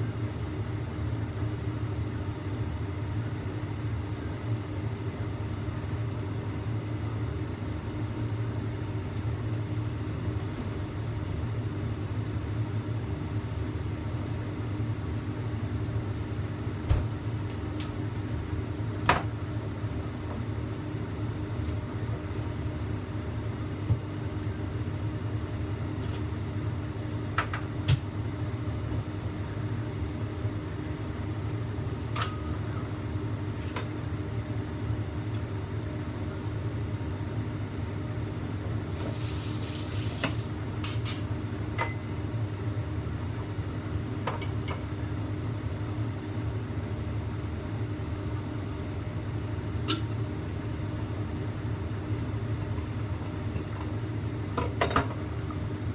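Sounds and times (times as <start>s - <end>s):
wok steaming rush and hum: 28.2s - 44.2s.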